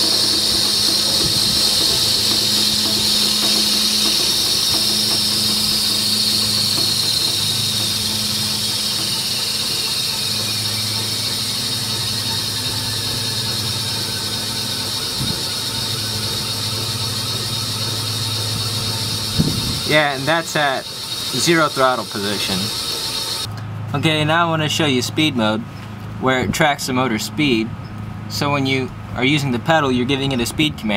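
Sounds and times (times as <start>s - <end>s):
electric motor whine falling in pitch: 0.0s - 23.5s
low hum: 0.0s - 23.5s.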